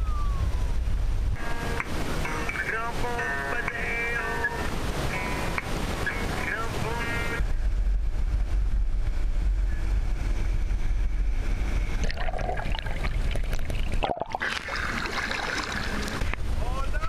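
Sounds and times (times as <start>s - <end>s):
wind buffeting microphone: 0.0s - 17.0s
water splashing: 1.4s - 7.4s, 11.8s - 16.6s
underwater water rushing and bubbling: 10.8s - 16.6s.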